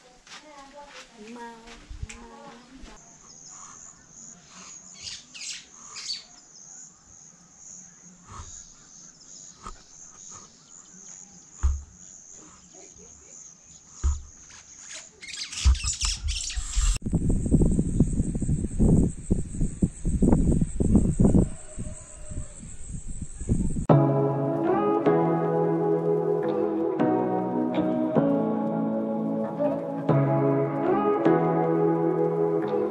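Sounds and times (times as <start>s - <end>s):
wind buffeting microphone: 1.7s - 2.3s, 15.7s - 23.9s
bird chirps: 3.0s - 23.9s
insect chirring: 3.0s - 23.9s.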